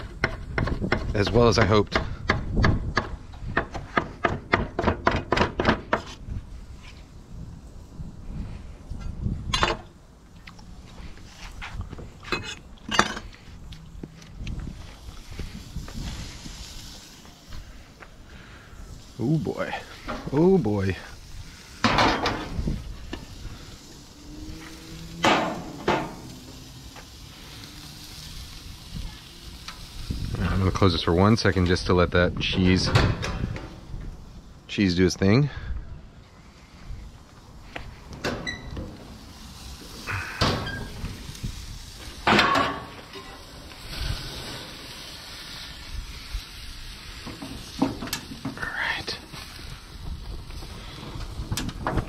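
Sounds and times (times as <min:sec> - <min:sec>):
patty sizzling on grill: 0:05.4 - 0:35.2, 0:36.2 - 0:52.0
metal pan clanking on grill: 0:21.8 - 0:22.6, 0:25.2 - 0:26.3, 0:42.2 - 0:43.5.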